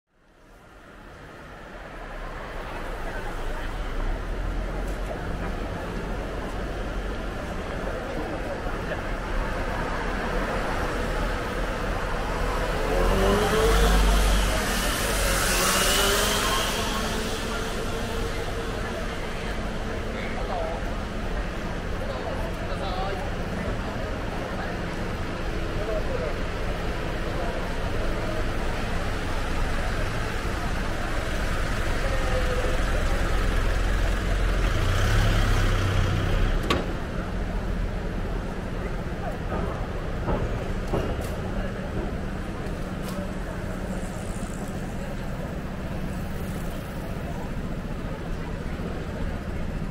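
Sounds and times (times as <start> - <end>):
night street ambience: 0.1 - 49.9
road traffic rumble: 0.1 - 49.9
vehicle engine hum: 0.2 - 49.9
car driving past: 10.1 - 19.7.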